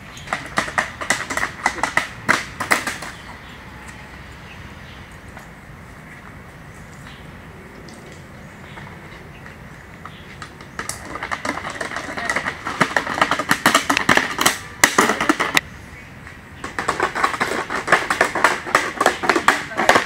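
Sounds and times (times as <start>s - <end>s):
hoverboards clattering on asphalt: 0.0s - 4.0s, 7.8s - 15.6s, 16.2s - 20.0s.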